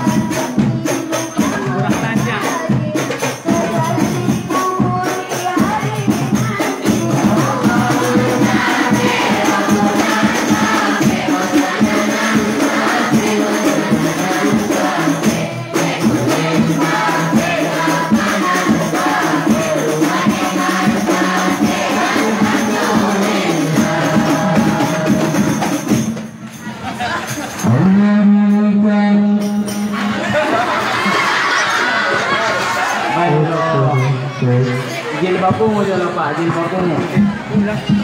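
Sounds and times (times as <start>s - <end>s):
frame drums beating: 0.0s - 27.8s, 35.4s - 38.0s
group singing devotional song: 0.0s - 38.0s.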